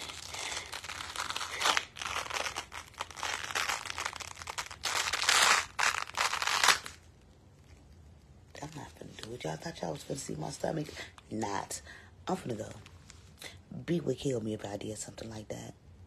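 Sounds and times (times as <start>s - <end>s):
clothing rustling and crinkling: 0.0s - 11.7s.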